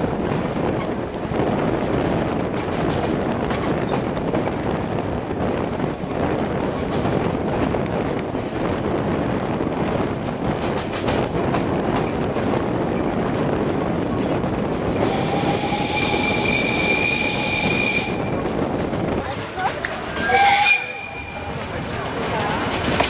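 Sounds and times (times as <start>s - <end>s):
train wheels rattling on rails: 0.0s - 23.0s
steam whistle blowing: 15.0s - 18.2s, 20.2s - 21.3s.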